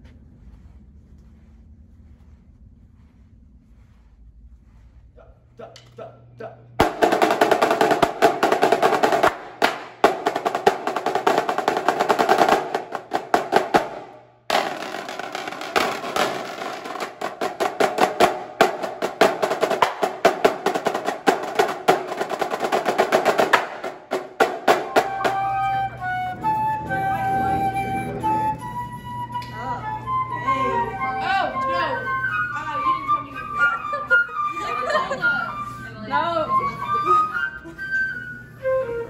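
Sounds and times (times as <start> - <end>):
marching snare drums playing: 6.8 - 26.6
held flute notes: 24.7 - 39.0.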